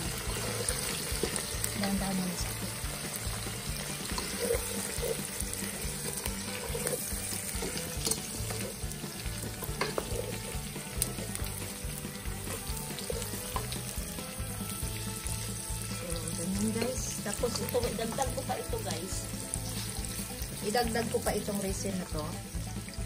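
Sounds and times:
food sizzling in a pan: 0.0s - 23.0s
utensil scraping a pan: 3.7s - 11.1s.

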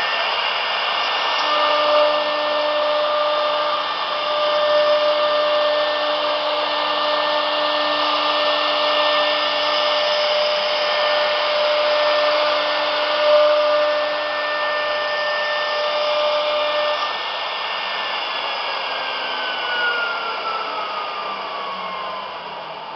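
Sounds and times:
hiss of wood cutting: 0.0s - 22.9s
router spindle whining: 0.0s - 22.9s.

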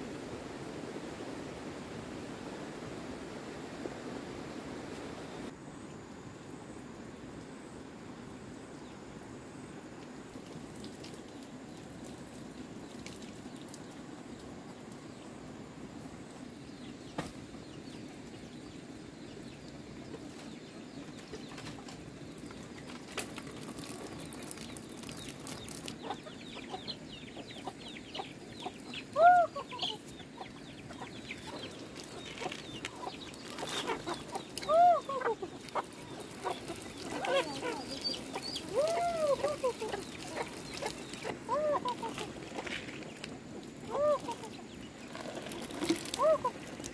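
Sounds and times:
chickens clucking: 25.5s - 46.9s.

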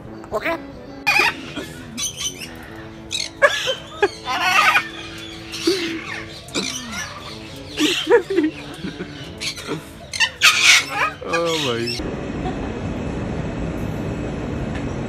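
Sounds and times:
background music: 0.0s - 12.0s
cockatoo squawking: 0.2s - 12.0s.

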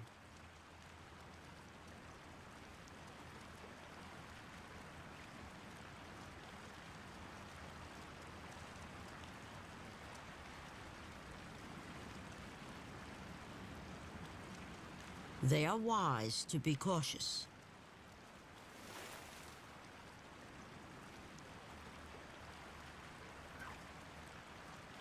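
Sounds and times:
creek flowing: 0.0s - 25.0s.

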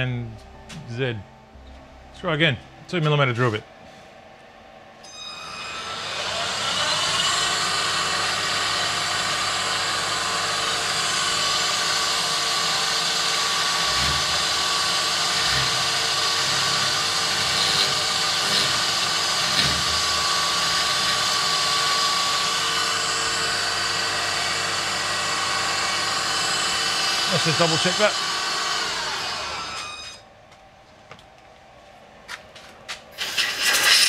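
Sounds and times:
power drill boring into metal: 5.2s - 30.2s, 33.2s - 34.0s.

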